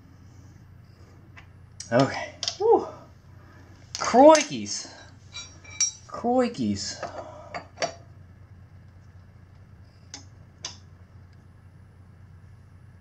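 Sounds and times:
metal tool clinks: 5.3 - 6.1.

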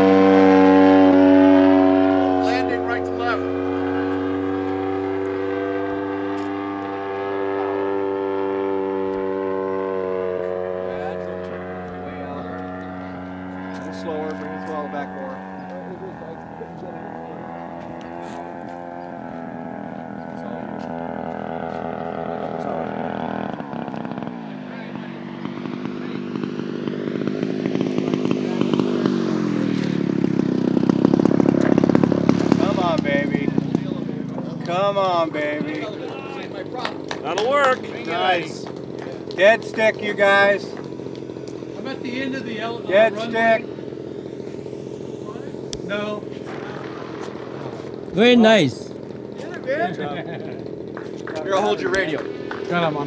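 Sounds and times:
model airplane engine drone: 0.0 - 53.0.

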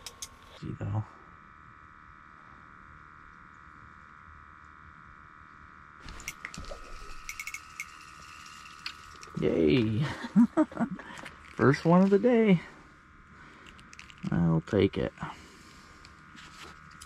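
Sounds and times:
faint high whine: 0.0 - 17.0
fishing reel clicking and rattling: 6.1 - 10.0, 11.2 - 12.1, 13.6 - 14.4.

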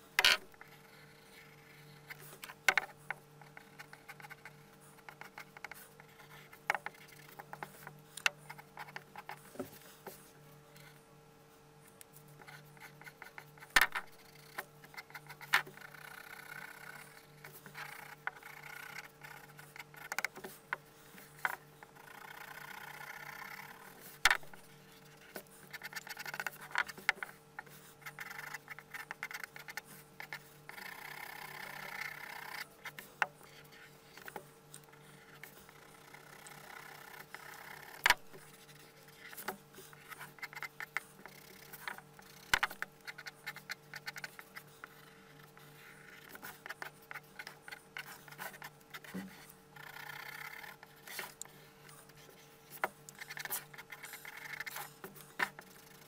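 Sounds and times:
pencil scratching on paper: 35.0 - 56.0.

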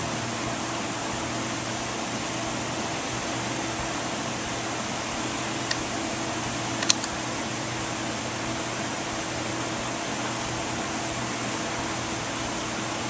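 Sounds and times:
metal parts click: 6.8 - 7.2.

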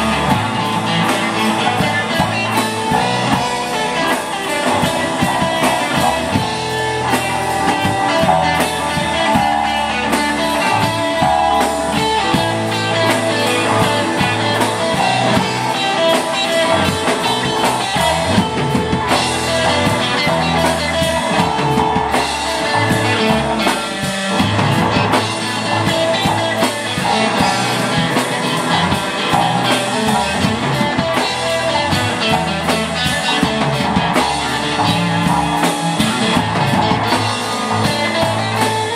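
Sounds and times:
drum kit: 0.0 - 38.9
electric guitars: 0.0 - 38.9.

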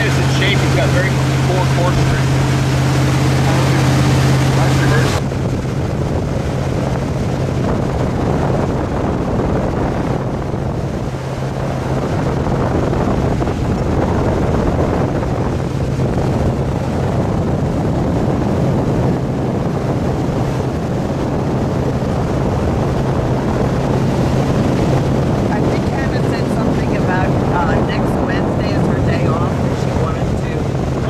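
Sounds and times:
boat engine droning: 0.0 - 31.0
water rushing: 0.0 - 31.0
wind buffeting microphone: 0.0 - 31.0.

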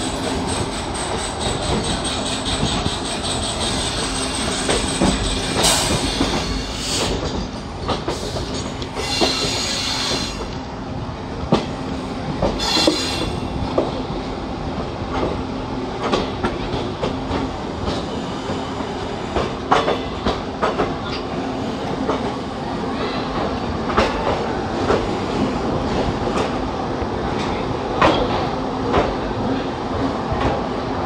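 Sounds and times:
train wheels clacking over rail joints: 0.0 - 10.6, 12.4 - 14.0, 16.0 - 22.4, 23.4 - 26.6
steady train rumble: 0.0 - 31.0.

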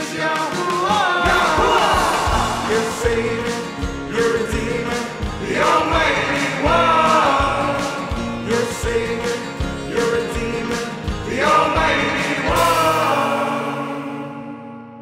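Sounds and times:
song with singing over beat: 0.0 - 14.6.

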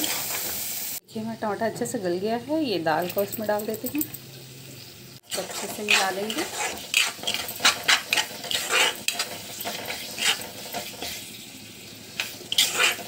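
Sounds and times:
frying sizzle: 0.0 - 13.0
spatula scraping metal pan: 5.3 - 11.2, 12.2 - 13.0.

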